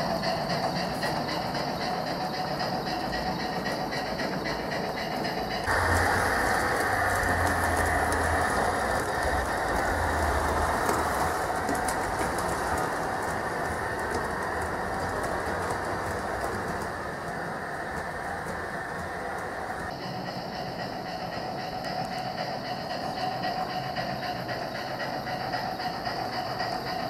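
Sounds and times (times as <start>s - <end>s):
model train wheels rumbling: 0.0s - 27.0s
low motor hum: 5.7s - 19.9s.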